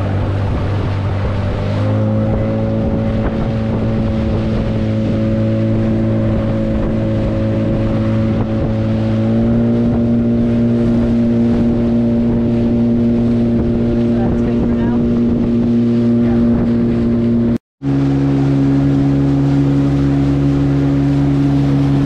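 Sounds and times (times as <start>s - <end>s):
motorboat engine running: 0.0s - 22.0s
water rushing past hull: 0.0s - 22.0s
wind on microphone: 0.0s - 22.0s.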